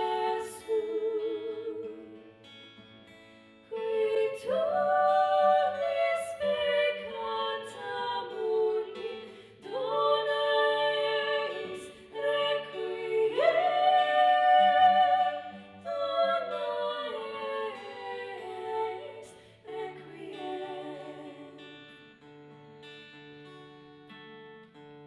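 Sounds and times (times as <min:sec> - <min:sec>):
women singing: 0:00.0 - 0:02.5, 0:03.7 - 0:21.9
acoustic guitar strumming: 0:04.7 - 0:19.6.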